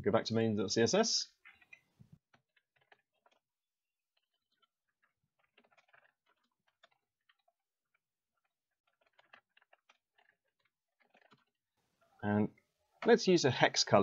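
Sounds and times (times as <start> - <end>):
faint keyboard typing: 4.2 - 11.6.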